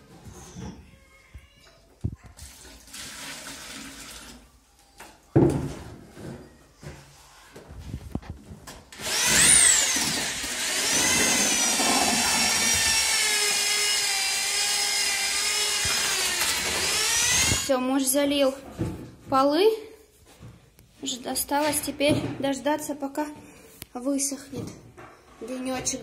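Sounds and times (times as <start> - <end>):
electric drill mixing screed: 8.9 - 17.7.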